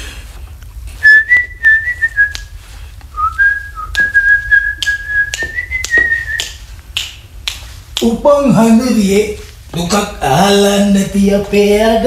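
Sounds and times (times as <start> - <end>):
person whistling a tune: 1.0 - 2.5, 3.1 - 6.5.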